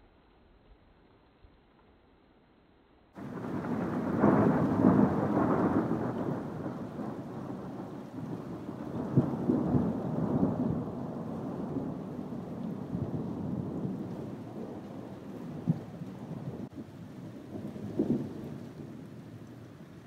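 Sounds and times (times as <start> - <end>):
sharp thunder clap: 3.2 - 12.1
thunder rumbling: 3.2 - 19.4.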